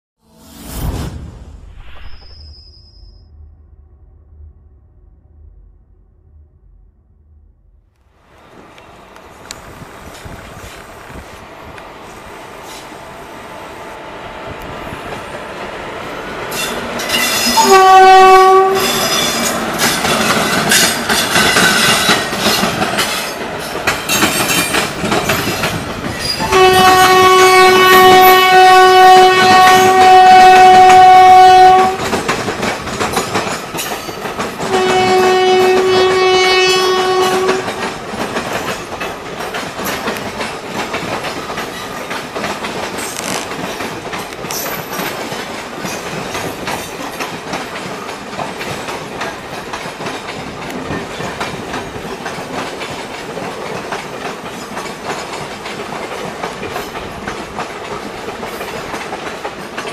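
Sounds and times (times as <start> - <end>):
train wheels clickety-clack: 16.3 - 59.9
locomotive horn: 17.3 - 19.5, 26.4 - 32.1, 34.6 - 37.8.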